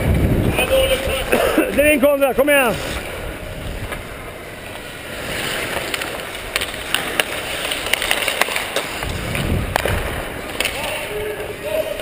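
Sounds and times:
skates scraping on ice: 0.0s - 12.0s
sticks clacking on puck: 5.7s - 9.1s, 9.7s - 11.1s.

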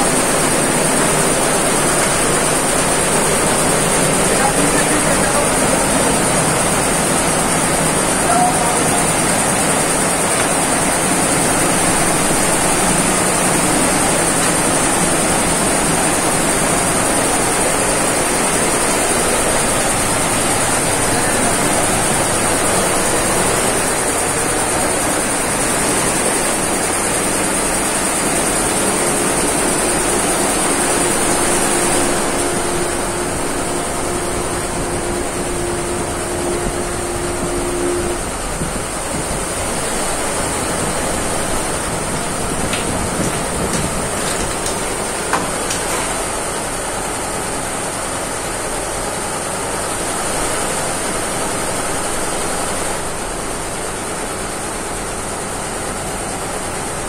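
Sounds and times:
embroidery machine running: 0.0s - 57.0s
high steady whine: 0.0s - 57.0s
low steady hum: 27.6s - 45.8s.

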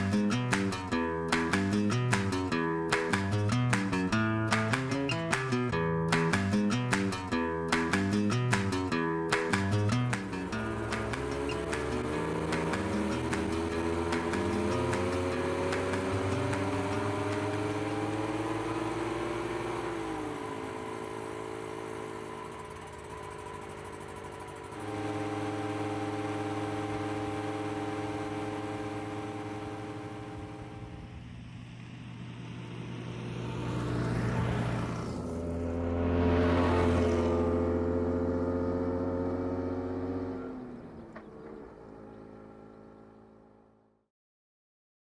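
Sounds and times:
car engine running: 0.0s - 43.7s
car passing by: 30.5s - 43.0s.

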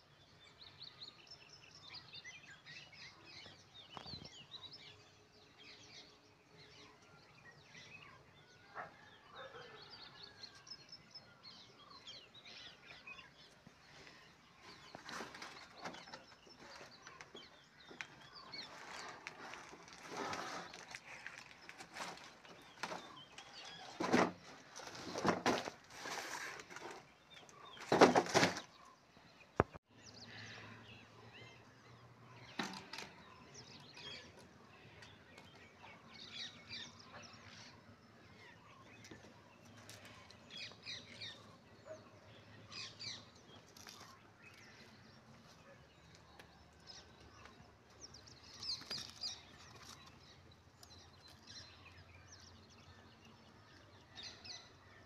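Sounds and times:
outdoor background: 0.0s - 55.0s
cardboard rustling and scraping: 14.7s - 28.8s.

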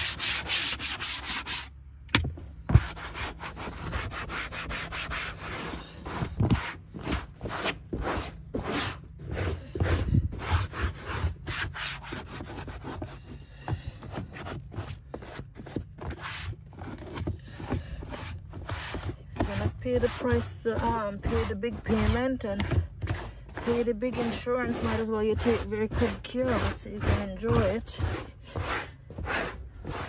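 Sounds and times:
cloth scrubbing carpet and plastic: 0.0s - 1.7s, 2.7s - 30.0s.

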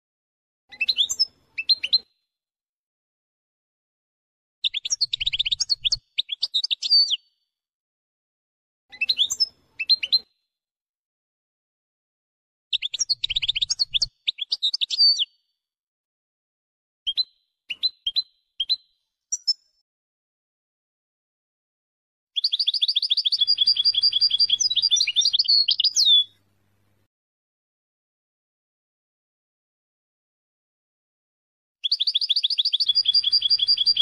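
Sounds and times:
bird twittering trills: 22.4s - 26.4s, 31.8s - 34.0s.

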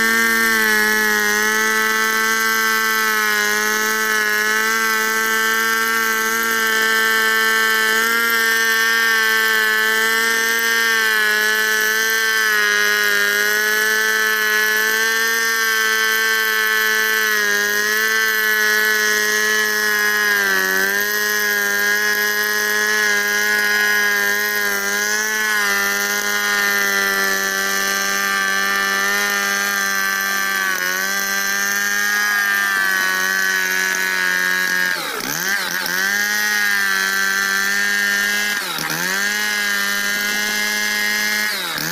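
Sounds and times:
chainsaw cutting log: 0.0s - 41.9s.

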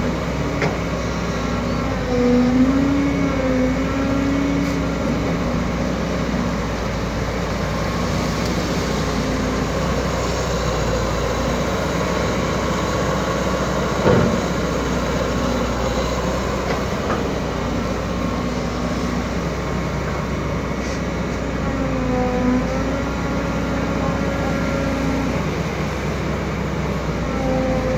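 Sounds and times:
excavator running: 0.0s - 27.9s
hydraulic whine: 20.8s - 27.9s.

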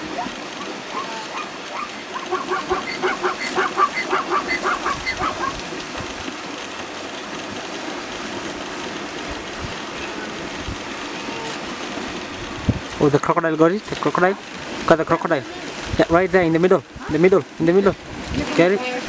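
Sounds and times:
rapid short animal calls: 0.9s - 5.6s.

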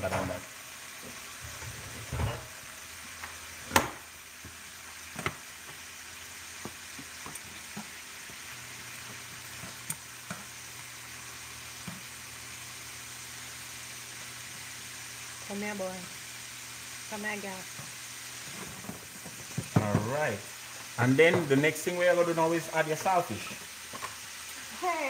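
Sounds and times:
shrimp sizzling in frying pan: 0.0s - 25.0s.

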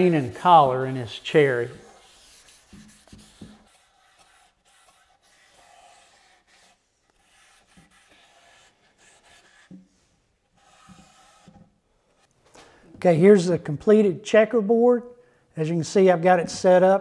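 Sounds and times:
rag rubbing on wood: 0.0s - 9.9s, 10.6s - 11.6s.

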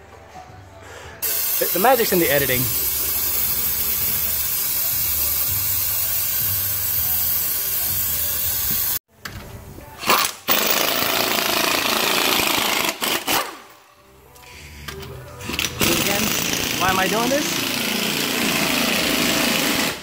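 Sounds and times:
aerosol spray can hissing: 1.2s - 9.0s
power tool running: 15.6s - 20.0s.

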